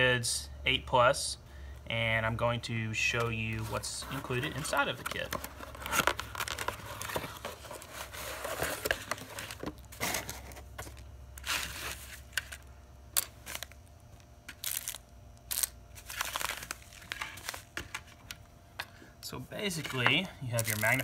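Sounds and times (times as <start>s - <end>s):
plastic bags rustling: 14.5s - 18.1s, 19.7s - 21.0s.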